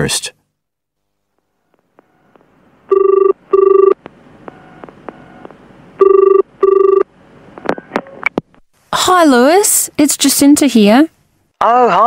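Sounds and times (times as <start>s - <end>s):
telephone ringing: 2.9s - 7.1s.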